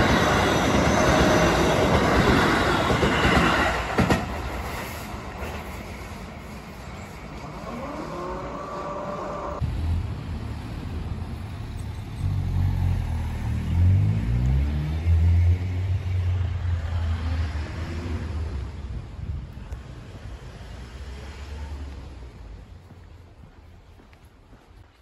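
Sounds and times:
vehicle engine rumbling and revving: 8.1s - 22.6s.

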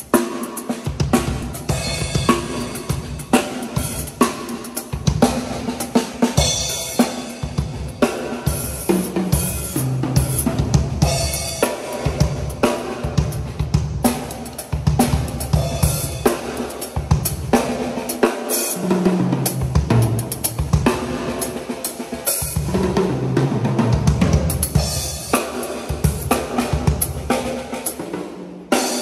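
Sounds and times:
snare and bass drum hits: 0.2s - 13.5s.

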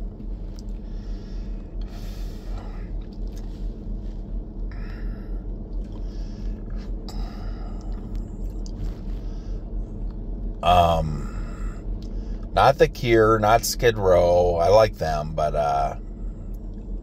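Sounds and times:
steady low hum: 0.0s - 17.0s
man breathing and sighing: 0.6s - 4.0s, 4.6s - 9.8s, 10.6s - 12.5s.

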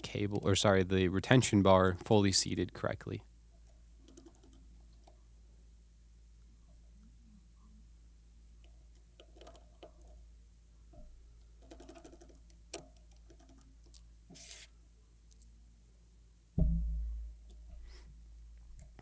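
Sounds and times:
heavy low thump: 16.6s - 17.3s.

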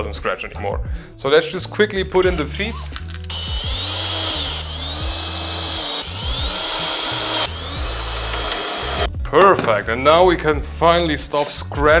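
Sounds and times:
cordless drill driving screws: 3.2s - 9.1s.

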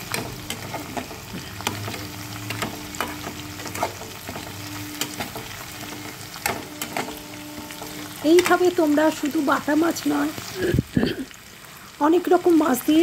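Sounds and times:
metal spatula scraping a pan: 0.0s - 9.4s
fish sizzling in oil: 0.0s - 13.0s.

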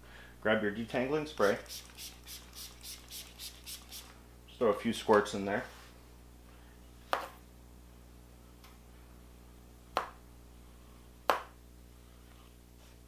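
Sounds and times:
hairbrush brushing hair: 1.4s - 4.2s.

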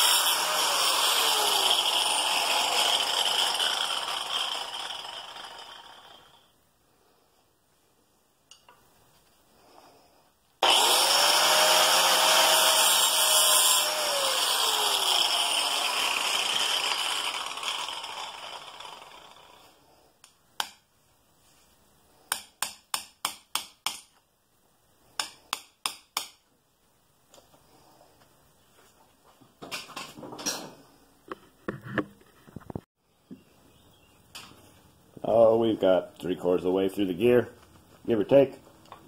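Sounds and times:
rotary tool grinding metal: 0.0s - 6.4s, 10.6s - 19.8s
tool spinning down: 0.0s - 6.5s, 10.6s - 19.9s.

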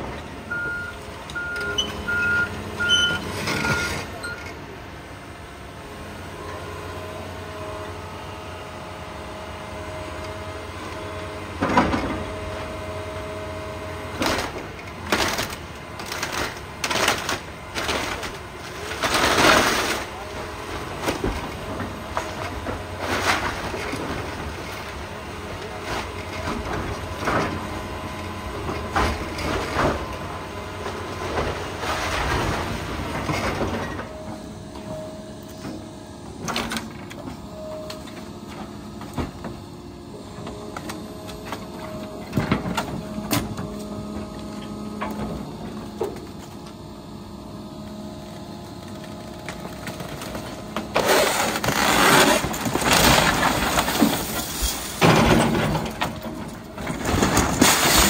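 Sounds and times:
excavator diesel engine running: 0.0s - 58.0s
crash of falling wood: 49.6s - 58.0s.

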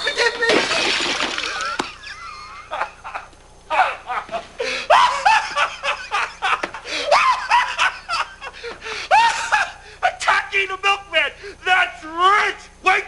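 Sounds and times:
high-pitched laughing and giggling: 1.4s - 9.8s.

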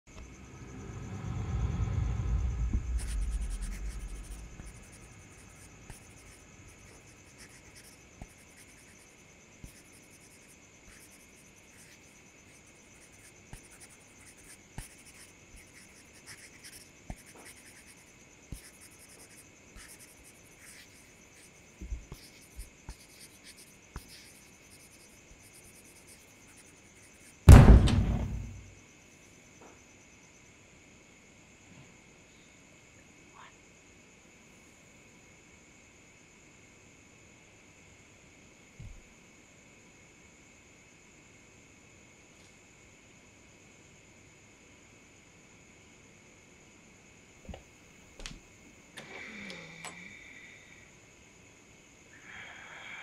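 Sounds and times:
low rumble: 0.1s - 5.8s
crickets chirping: 0.1s - 53.0s
loud sudden bang: 1.8s - 5.4s, 27.5s - 28.7s.

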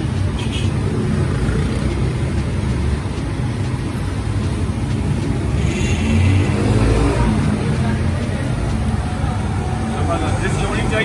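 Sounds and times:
street traffic rumble: 0.0s - 11.0s.

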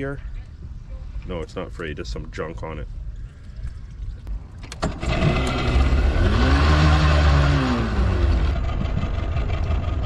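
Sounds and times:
outboard motor running: 4.8s - 10.0s.

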